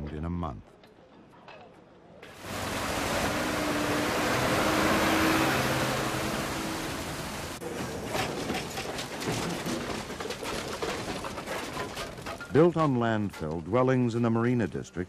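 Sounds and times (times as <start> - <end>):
diesel engine running: 2.3 - 7.6
debris falling: 7.6 - 13.6
wood cracking and clattering: 7.6 - 13.8.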